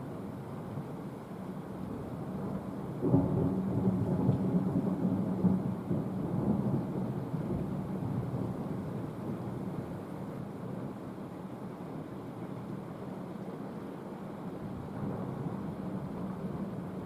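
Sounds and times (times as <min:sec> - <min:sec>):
thunder clap and rumble: 0:02.4 - 0:09.6.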